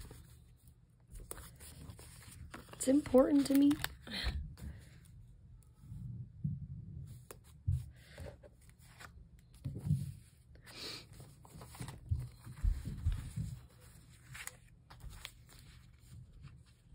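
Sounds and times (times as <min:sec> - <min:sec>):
paper rustling: 0:00.0 - 0:04.9, 0:11.0 - 0:16.9.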